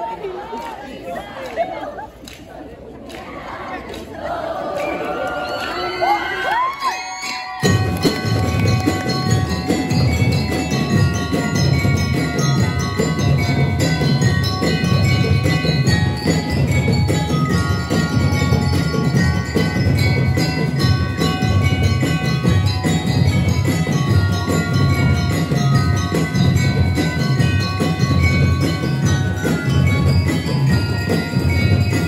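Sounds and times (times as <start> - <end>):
bell lyre melody: 5.7 - 32.0
drums playing: 7.6 - 32.0.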